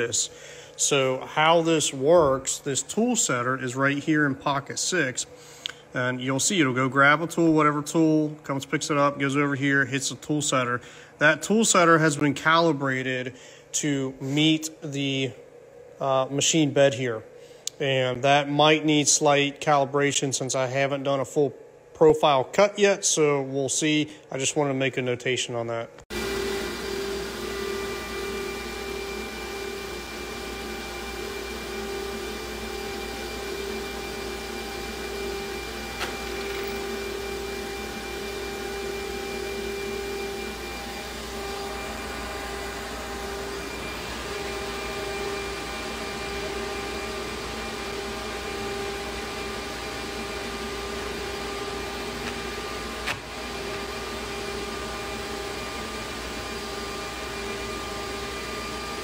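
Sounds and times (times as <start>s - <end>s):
router spindle high whine: 26.1s - 59.0s.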